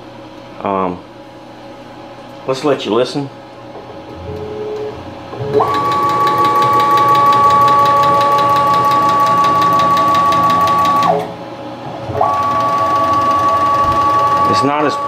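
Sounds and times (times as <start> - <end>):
stepper motor whine: 4.2 - 11.4, 12.0 - 15.0.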